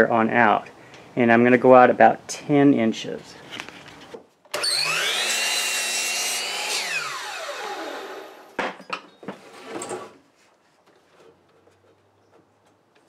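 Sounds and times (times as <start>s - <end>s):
miter saw cutting board: 4.5s - 8.6s.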